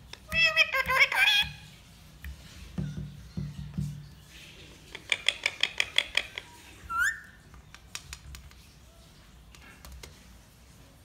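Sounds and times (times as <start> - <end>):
parakeet chirps: 5.0 - 7.4.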